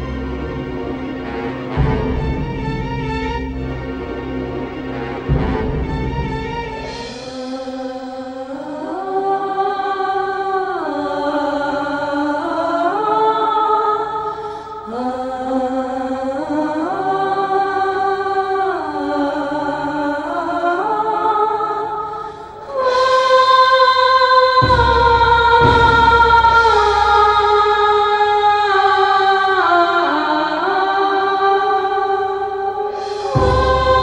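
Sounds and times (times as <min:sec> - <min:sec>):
low bass: 0:00.0 - 0:07.0
slow melody with singing: 0:00.0 - 0:34.0.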